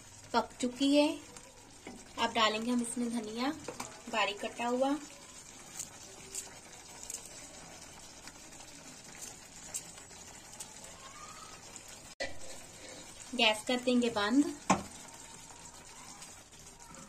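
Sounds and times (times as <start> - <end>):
curry simmering in a pan: 0.0 - 17.0.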